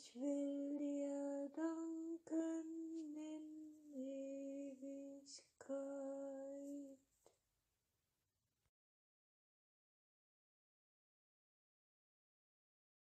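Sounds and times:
woman singing slow melody: 0:00.0 - 0:07.0.

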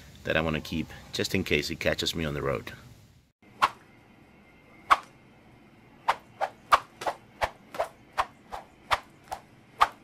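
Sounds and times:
faint steady hum: 0:00.0 - 0:09.9.

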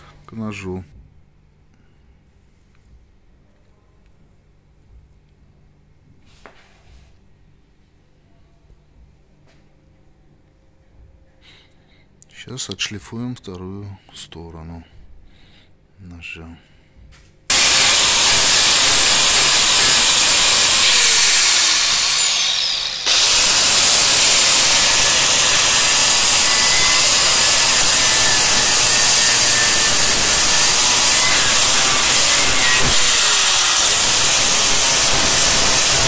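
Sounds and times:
angle grinder grinding steel: 0:17.5 - 0:36.0.

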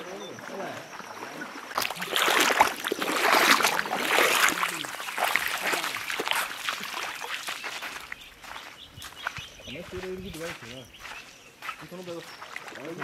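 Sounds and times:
people talking: 0:00.0 - 0:00.9, 0:03.6 - 0:06.1, 0:09.7 - 0:10.9, 0:11.8 - 0:13.0
feet splashing through water: 0:00.0 - 0:13.0.

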